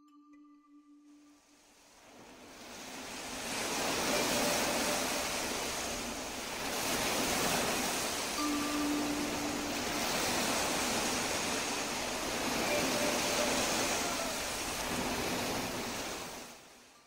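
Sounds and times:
ocean surf washing in: 0:01.4 - 0:16.9
soft bell-like ringing tone: 0:03.8 - 0:06.2, 0:08.2 - 0:14.6.

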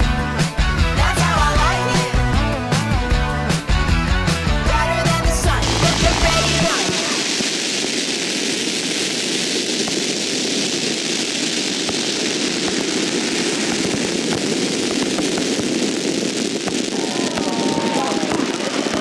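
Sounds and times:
fireworks roaring hiss: 0:04.8 - 0:19.0.

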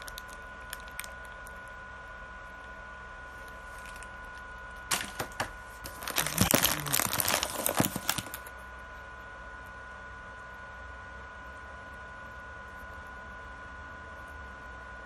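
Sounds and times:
plastic wrappers crinkling: 0:00.0 - 0:01.6, 0:03.4 - 0:04.3, 0:04.9 - 0:08.5.

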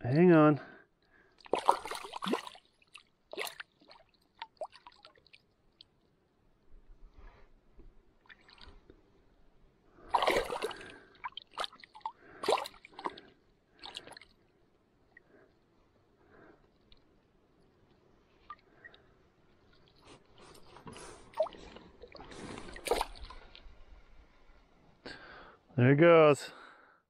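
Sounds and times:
water splashing around hand and fish: 0:01.4 - 0:06.1, 0:08.2 - 0:08.9, 0:10.0 - 0:14.5, 0:18.3 - 0:24.0.

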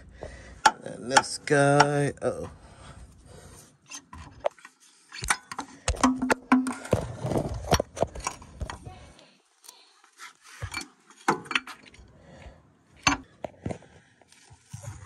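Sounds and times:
hand tools and bolts clinking: 0:00.6 - 0:02.6, 0:03.8 - 0:08.9, 0:10.6 - 0:12.1.

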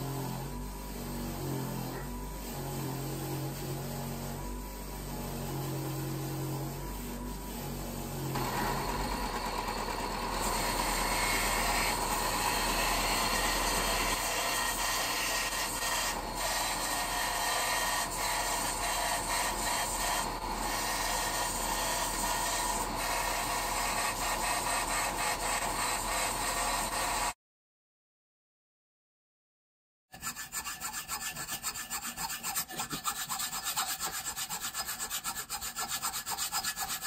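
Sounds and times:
belt sander grinding metal: 0:08.3 - 0:27.1.

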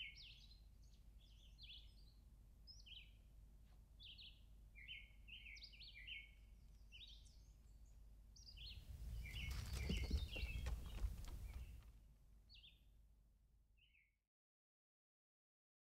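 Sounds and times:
small birds chirping: 0:00.0 - 0:03.2, 0:04.0 - 0:11.9.

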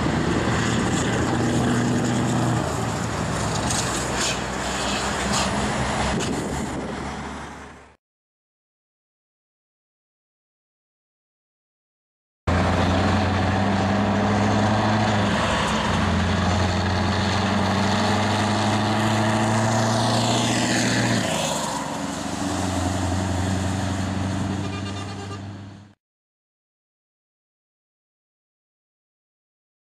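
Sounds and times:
truck diesel engine droning: 0:00.0 - 0:08.0, 0:12.5 - 0:26.0.

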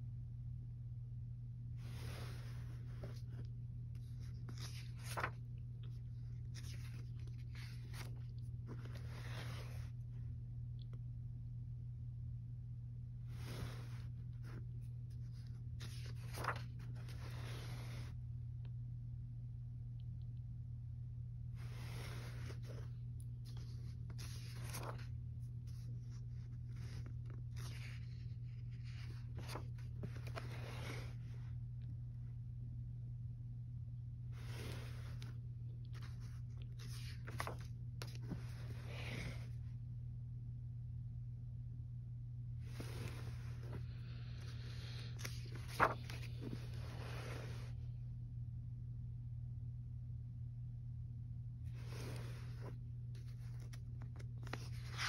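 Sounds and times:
steady low hum: 0:00.0 - 0:55.0
paper pages rustling: 0:01.8 - 0:10.4, 0:13.2 - 0:18.2, 0:21.5 - 0:31.7, 0:34.3 - 0:39.6, 0:42.6 - 0:47.8, 0:51.7 - 0:55.0.

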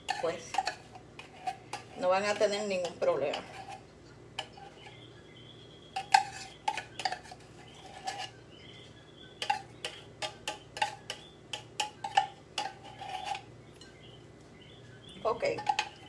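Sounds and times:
metal utensil scraping tin can: 0:06.0 - 0:08.4, 0:12.0 - 0:13.5.

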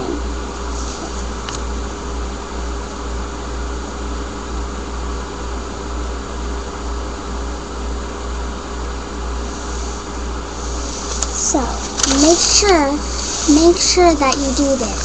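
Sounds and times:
even hiss: 0:09.5 - 0:15.0.

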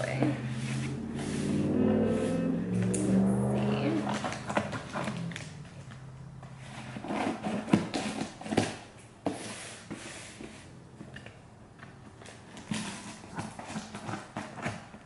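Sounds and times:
hands rubbing cardboard box: 0:00.0 - 0:02.6.

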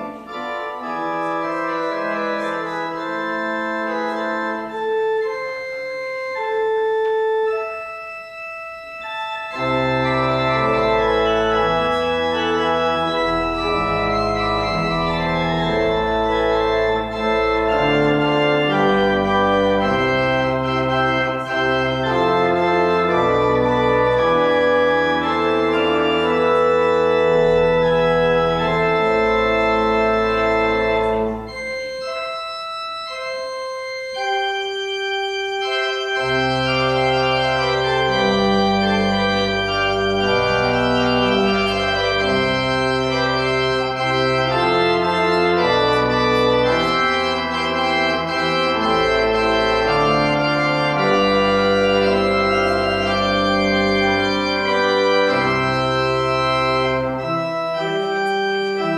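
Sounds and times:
organ playing slow chords: 0:00.0 - 0:58.9.

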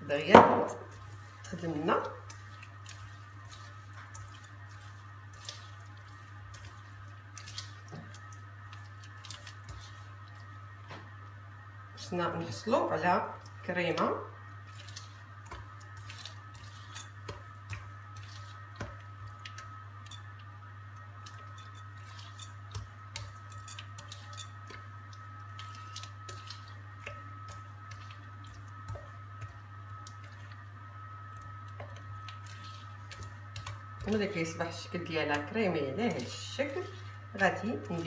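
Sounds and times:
steady low hum: 0:00.0 - 0:38.0
butter and sugar squishing: 0:00.9 - 0:10.8, 0:14.4 - 0:38.0.

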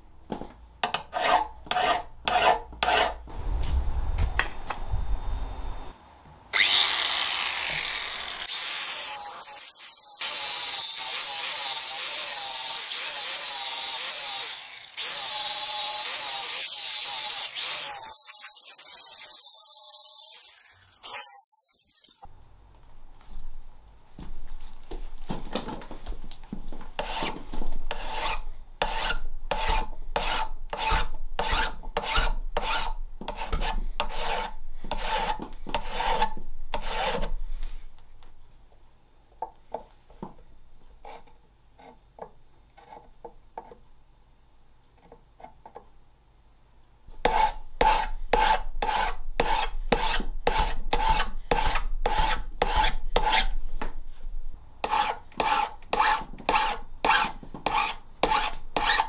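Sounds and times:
file rasping on steel: 0:00.8 - 0:03.2, 0:27.0 - 0:37.3, 0:47.2 - 0:53.6, 0:54.8 - 0:59.0.

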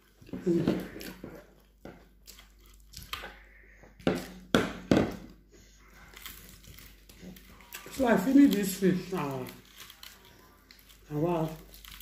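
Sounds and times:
person chewing and lip smacking: 0:00.0 - 0:03.6.

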